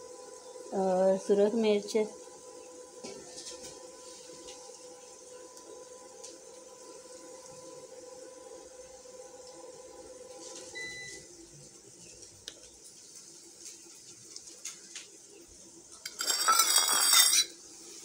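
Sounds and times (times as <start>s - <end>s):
spices sizzling in hot oil: 0.0s - 18.0s
stirring in a pot: 16.0s - 17.6s.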